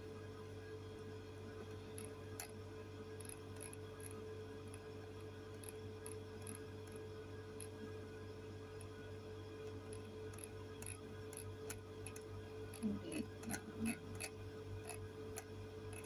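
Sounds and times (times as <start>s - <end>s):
steady low hum: 0.0s - 16.0s
faint high ticks: 9.6s - 16.0s.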